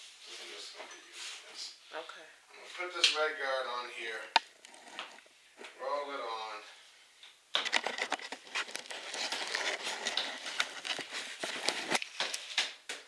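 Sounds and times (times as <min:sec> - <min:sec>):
paint roller crackling: 0:07.6 - 0:12.6.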